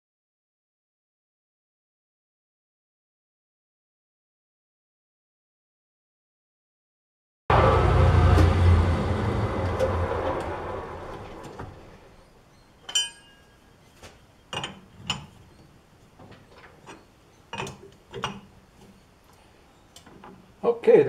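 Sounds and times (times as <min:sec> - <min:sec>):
metal lathe spinning down: 0:07.5 - 0:12.3
metal tools clinking: 0:12.8 - 0:13.7.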